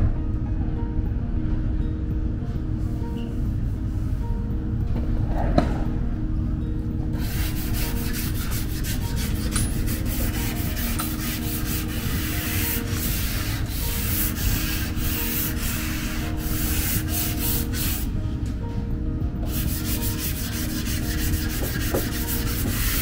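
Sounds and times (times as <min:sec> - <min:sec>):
sandpaper rubbing by hand: 0:07.2 - 0:18.1, 0:19.5 - 0:23.0.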